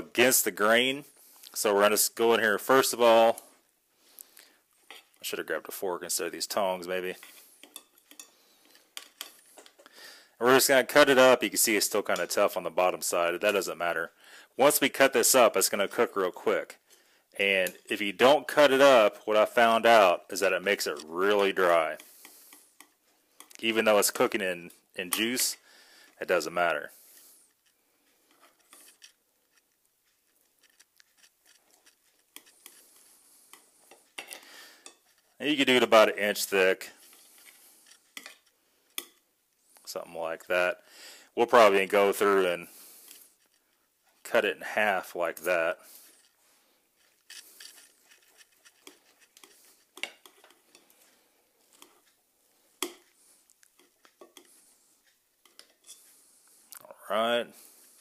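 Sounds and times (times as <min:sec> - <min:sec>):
knife and tongs scraping a plate: 0:07.2 - 0:09.8, 0:21.2 - 0:23.6, 0:27.0 - 0:39.2, 0:47.0 - 0:52.1, 0:53.8 - 0:54.7, 0:55.4 - 0:56.2.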